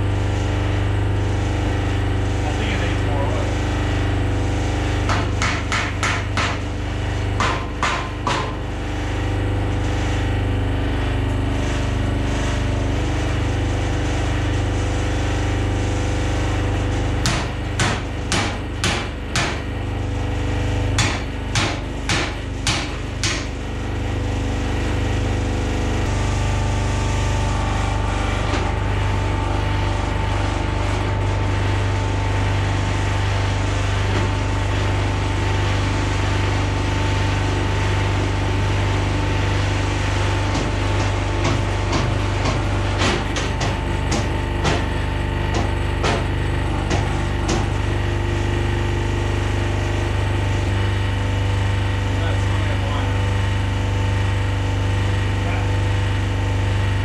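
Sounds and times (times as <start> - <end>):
hydraulic power unit humming: 0.0 - 57.0
hammer knocks on metal: 7.4 - 8.6.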